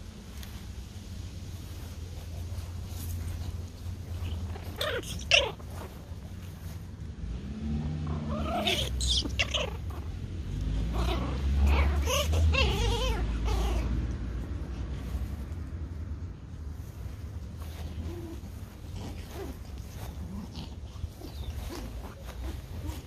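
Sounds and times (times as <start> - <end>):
low steady rumble: 0.0 - 23.0
puppies whining and yelping: 4.1 - 6.0, 8.0 - 10.1, 10.8 - 14.2, 17.7 - 23.0.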